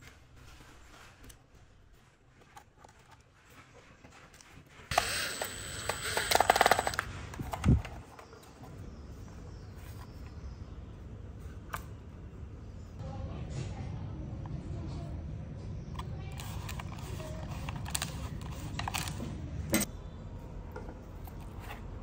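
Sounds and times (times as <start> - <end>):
drill driving a screw: 4.9 - 7.0.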